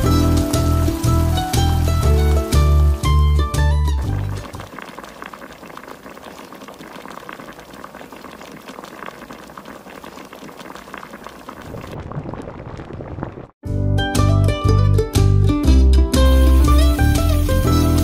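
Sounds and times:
water boiling hard in a pot: 0.0s - 3.2s, 4.0s - 13.3s, 16.3s - 18.0s.

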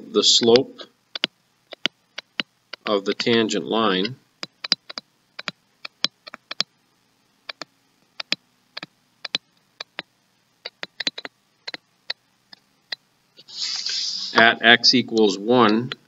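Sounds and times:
stylus tapping on tablet screen: 0.4s - 3.2s, 4.4s - 6.7s, 7.4s - 13.0s.

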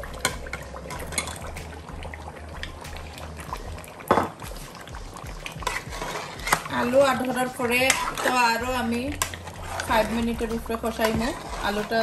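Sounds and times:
sauce bubbling: 0.0s - 12.0s
knock against pot: 4.1s - 4.4s.

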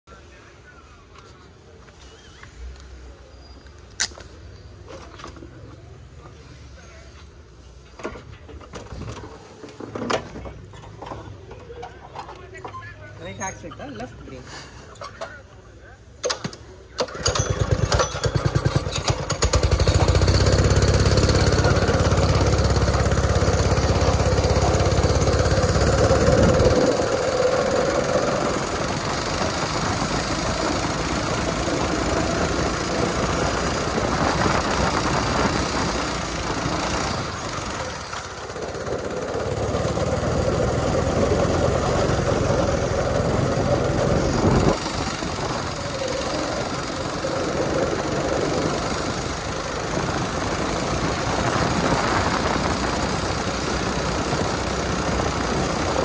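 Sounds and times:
go-kart engine revving: 17.0s - 56.0s.

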